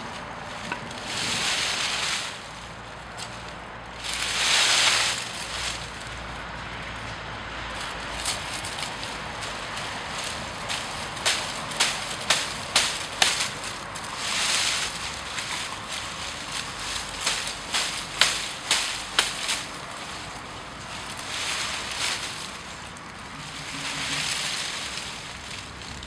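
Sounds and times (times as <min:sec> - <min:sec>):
leafy branch rustling: 0:00.0 - 0:26.0
hatchet chopping branch: 0:08.2 - 0:20.0.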